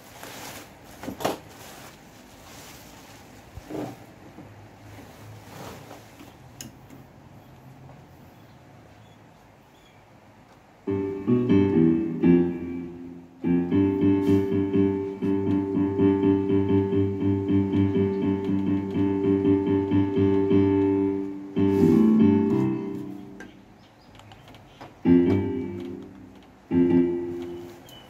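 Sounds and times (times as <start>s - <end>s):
electronic keyboard playing: 10.8s - 28.0s.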